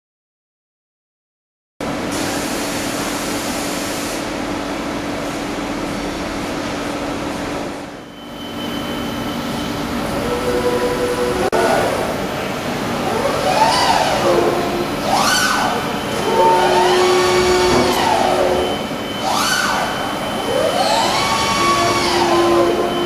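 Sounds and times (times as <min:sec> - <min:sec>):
machine mechanical hum: 0:01.8 - 0:23.0
faint motor whines: 0:12.9 - 0:23.0.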